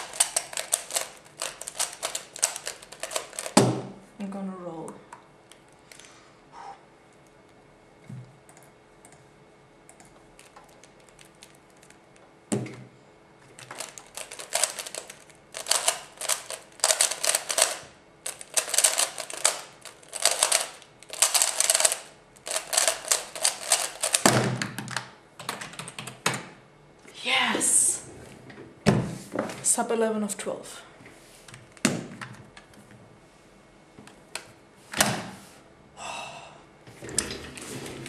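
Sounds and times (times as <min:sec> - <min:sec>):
puzzle cube plastic clicking: 0:00.0 - 0:03.6, 0:13.6 - 0:25.1.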